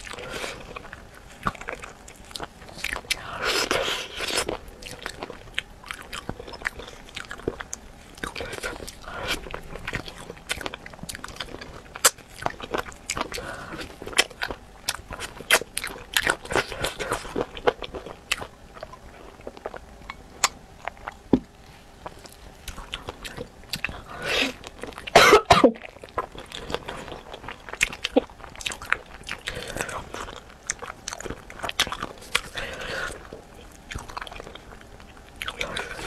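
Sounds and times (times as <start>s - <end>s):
person coughing: 25.1s - 25.8s.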